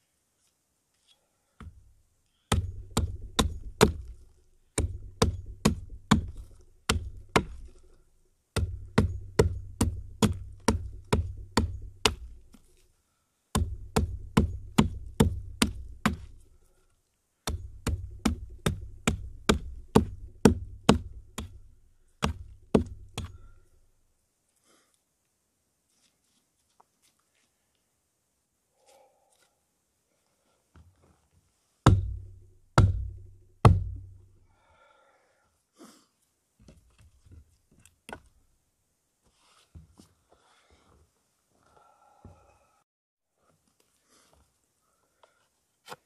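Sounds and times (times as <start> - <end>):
hatchet chopping wood: 2.5 - 12.6, 13.5 - 16.5, 17.4 - 23.7, 31.9 - 34.2.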